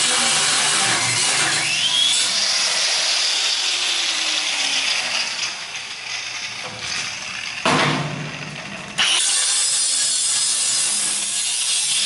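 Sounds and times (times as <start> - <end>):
angle grinder motor whine: 0.0 - 7.6, 8.2 - 12.0.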